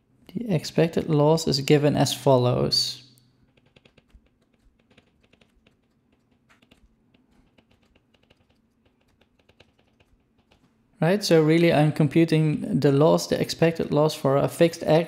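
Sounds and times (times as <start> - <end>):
stylus tapping on tablet: 3.5 - 10.8.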